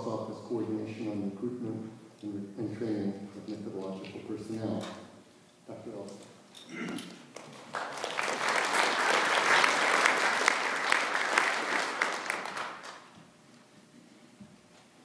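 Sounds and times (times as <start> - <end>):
audience applauding: 7.4 - 13.1.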